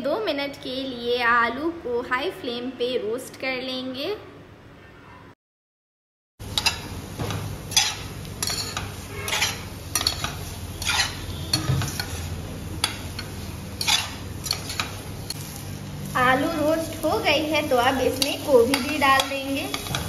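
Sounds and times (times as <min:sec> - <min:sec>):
food sizzling: 0:06.4 - 0:20.0
spatula scraping a steel pan: 0:07.7 - 0:15.0.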